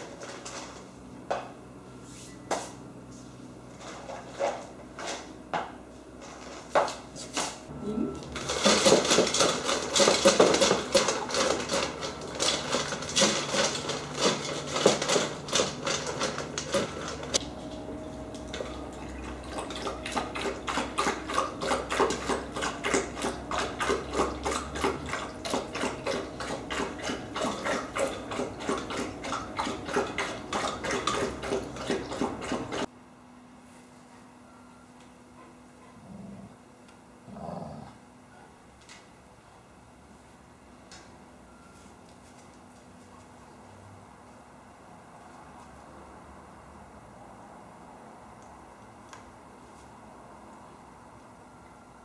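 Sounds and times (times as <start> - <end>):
dogs lapping water from metal bowls: 8.4 - 17.4, 18.5 - 32.9.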